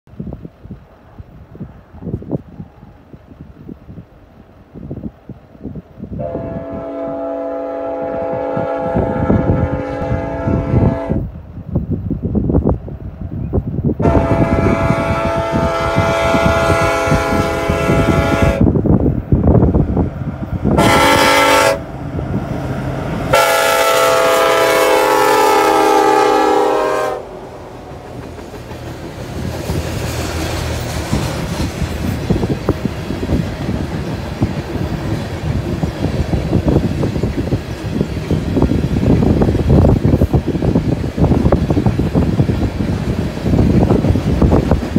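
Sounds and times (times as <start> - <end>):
low rumble of locomotives: 0.1 - 44.9
train wheels on rail: 0.1 - 44.9
train air horn blasts: 6.2 - 11.3, 14.0 - 18.7, 20.7 - 21.9, 23.3 - 28.0.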